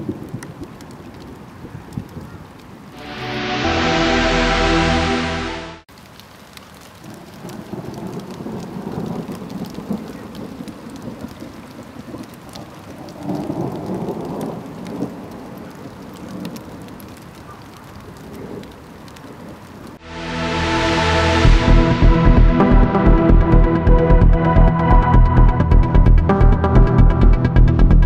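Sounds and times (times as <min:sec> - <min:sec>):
raindrop ticks: 0:00.0 - 0:03.0, 0:05.9 - 0:20.0
steady rain: 0:00.0 - 0:28.0.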